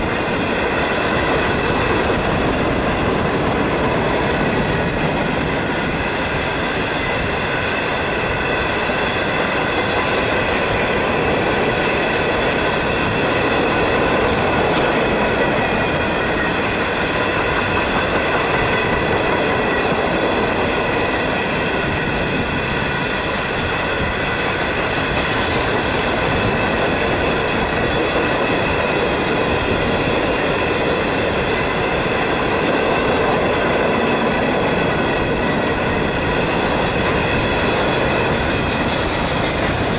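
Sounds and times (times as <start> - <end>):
train wheels rumbling and clattering: 0.0 - 39.9.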